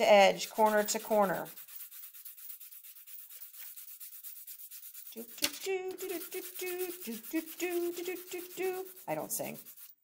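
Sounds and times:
pencil scribbling on paper: 0:00.0 - 0:10.0
woman humming: 0:05.2 - 0:09.0.

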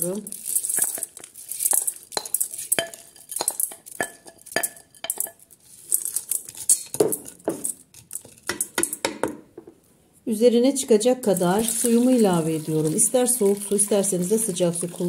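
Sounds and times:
rustle of grains: 0:00.0 - 0:06.8
wooden spoon knocking on bowl and pot: 0:08.5 - 0:09.8.

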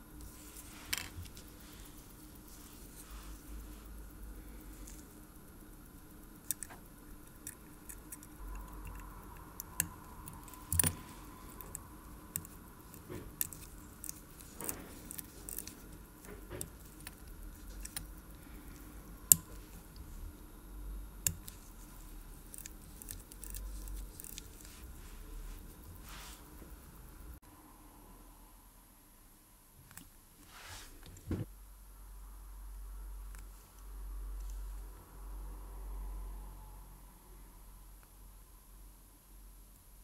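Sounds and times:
small metallic clicks and ticks: 0:00.2 - 0:27.3.

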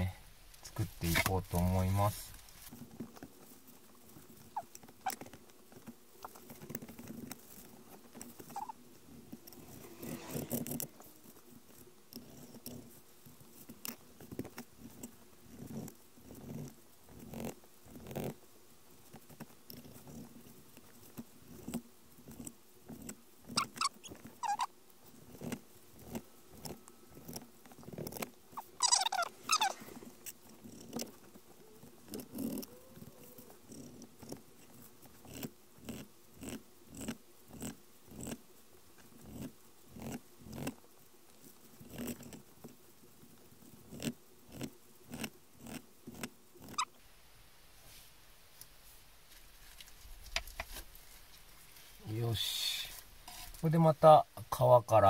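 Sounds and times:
squeaky call: 0:23.5 - 0:24.7, 0:28.6 - 0:29.8.

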